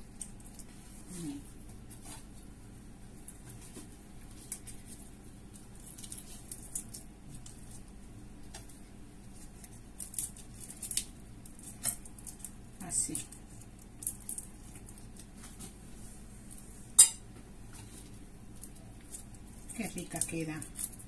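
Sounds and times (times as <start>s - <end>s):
prawn shells crackling: 3.2s - 15.4s, 18.0s - 21.0s.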